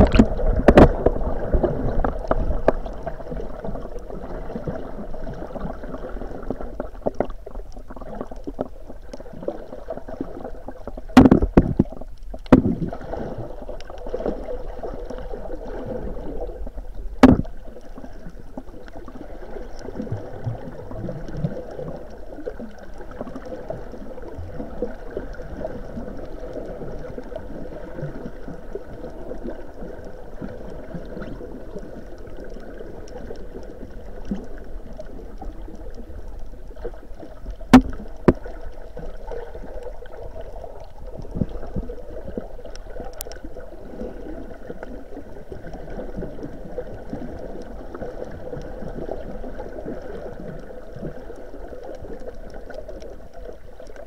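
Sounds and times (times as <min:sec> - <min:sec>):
faint click: 0:42.7 - 0:43.4.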